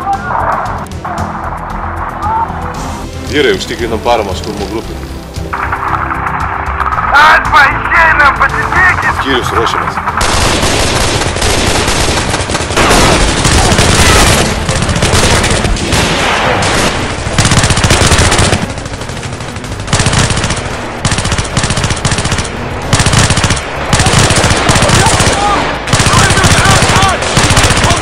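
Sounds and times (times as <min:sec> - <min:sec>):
automatic rifle fire: 0:10.2 - 0:18.7, 0:19.9 - 0:28.0.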